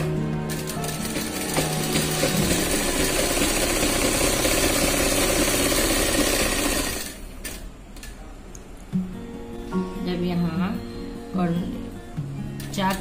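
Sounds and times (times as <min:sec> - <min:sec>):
sewing machine stitching: 0:00.0 - 0:07.6.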